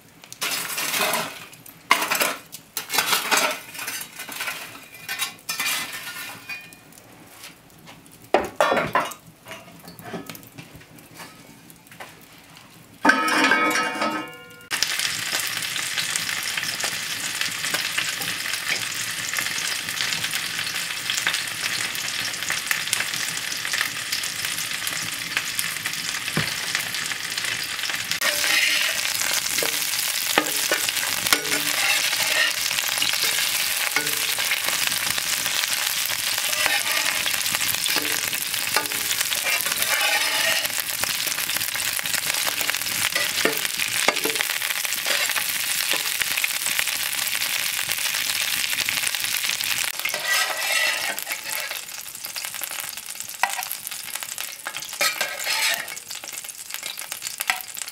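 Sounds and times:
sausages sizzling in frying pan: 0.0 - 57.9
spatula scraping pan: 0.4 - 6.6, 28.2 - 41.0, 42.4 - 46.2, 49.9 - 51.9, 54.6 - 56.2
loud ringing metal clank: 13.1 - 14.7.

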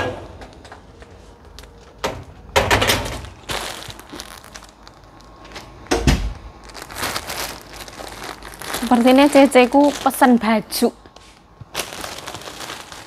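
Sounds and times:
heavy thud: 5.9 - 6.4.

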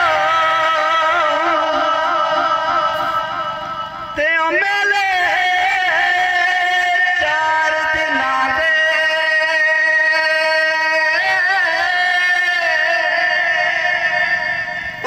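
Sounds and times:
man singing into a microphone: 0.0 - 15.0.

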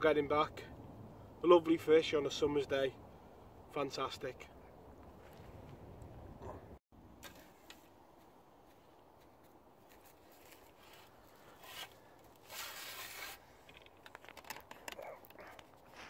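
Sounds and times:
camera handling rustle: 10.4 - 15.9.

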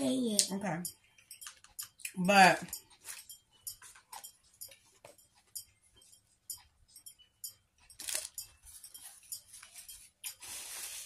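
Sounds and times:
paper bags rustling: 10.4 - 11.0.

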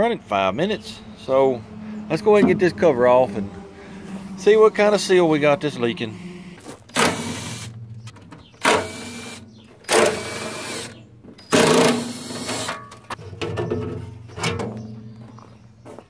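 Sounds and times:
power driver whirring: 3.4 - 12.8.

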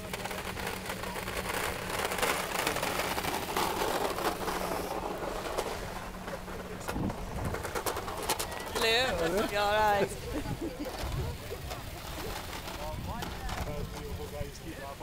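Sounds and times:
wind buffeting microphone: 4.2 - 8.2.

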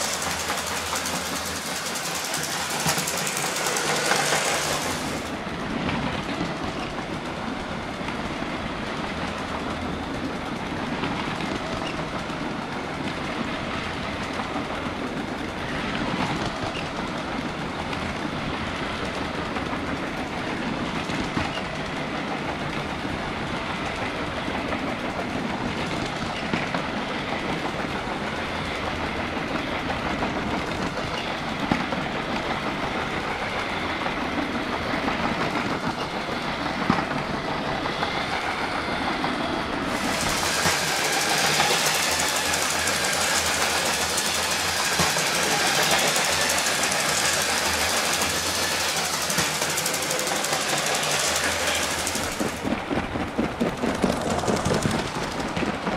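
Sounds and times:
toy train motor hum: 0.0 - 5.3, 40.0 - 52.7
wheels rattling along rails: 0.0 - 55.9.

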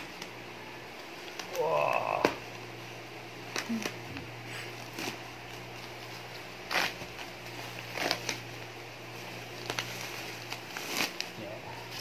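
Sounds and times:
plastic crinkling: 3.4 - 12.0
plastic mailer being torn open: 6.6 - 8.6, 9.5 - 11.4.

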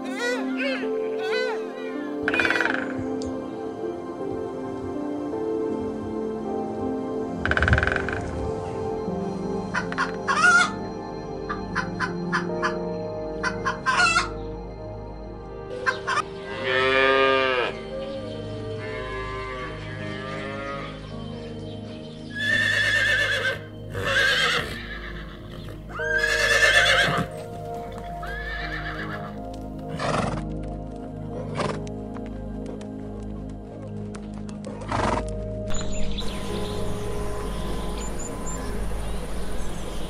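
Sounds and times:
cattle calling: 0.0 - 3.0, 15.8 - 17.8, 18.8 - 21.1, 22.3 - 30.4
background music: 0.0 - 40.0
horse call: 22.4 - 30.4.

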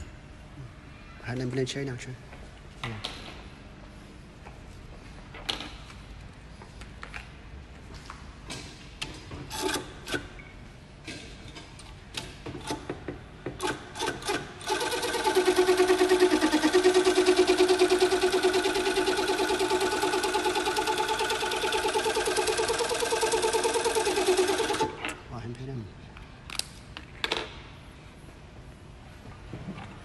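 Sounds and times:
sewing machine stitching: 13.6 - 25.0.

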